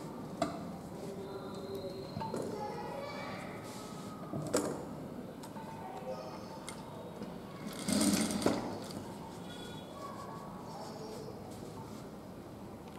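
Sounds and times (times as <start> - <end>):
sewing machine stitching: 7.7 - 8.6.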